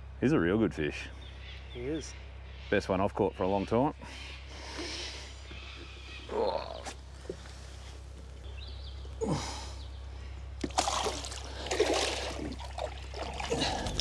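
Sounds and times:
steady low hum: 0.0 - 14.0
water splashing and sloshing: 10.6 - 14.0.

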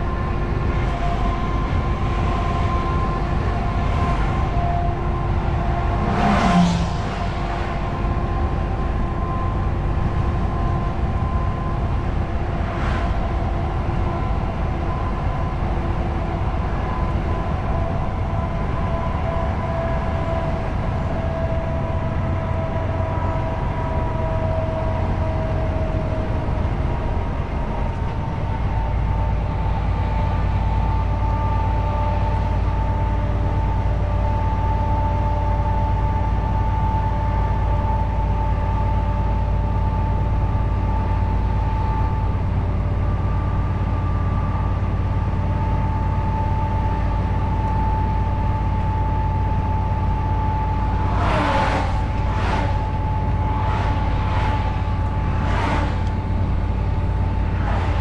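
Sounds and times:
diesel engine droning: 0.0 - 58.0
tyre and road noise: 0.0 - 58.0
coach whooshing past: 51.2 - 58.0.

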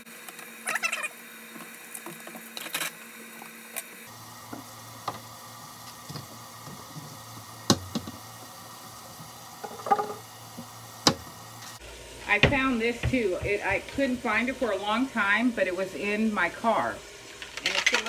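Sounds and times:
steady low hum: 4.0 - 17.3
kitchen items knocking: 9.6 - 10.2.

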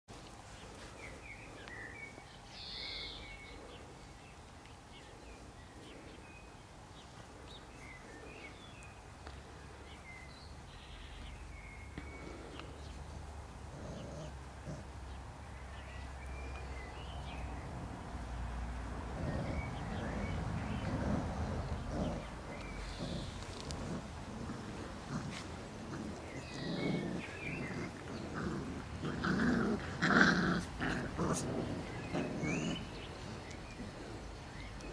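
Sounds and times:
low steady rumble: 10.7 - 34.9.

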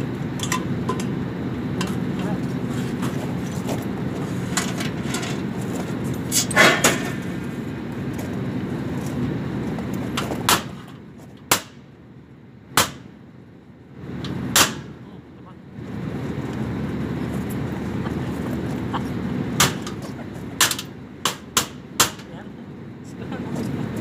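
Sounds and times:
low equipment hum: 0.0 - 24.0
metal panels knocking and clanking: 4.4 - 7.4.

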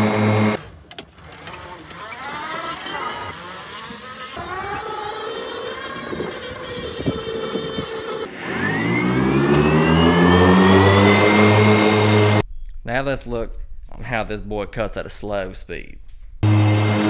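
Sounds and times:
electric mower motors whining: 0.0 - 12.4, 16.4 - 17.0.

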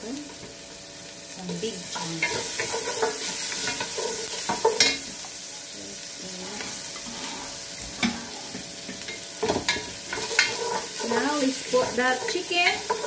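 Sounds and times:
food sizzling in hot oil: 0.0 - 13.0
wooden spoon scraping a pot: 1.9 - 5.0, 6.6 - 13.0.

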